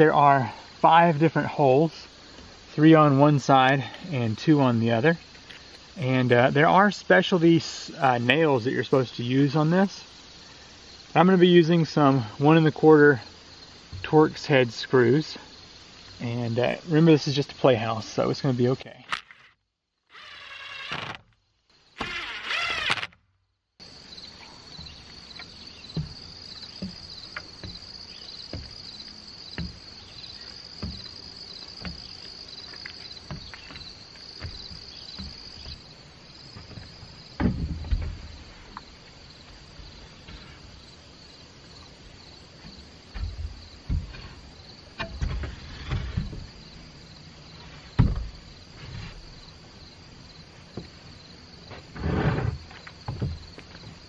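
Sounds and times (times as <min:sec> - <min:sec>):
high insect chorus: 0:00.0 - 0:54.0
lumber knocks and thumps: 0:13.9 - 0:14.4, 0:24.7 - 0:40.8, 0:42.2 - 0:46.9, 0:47.6 - 0:49.6, 0:50.7 - 0:51.0, 0:51.6 - 0:54.0
cordless drill whining: 0:20.1 - 0:21.2, 0:22.0 - 0:23.2.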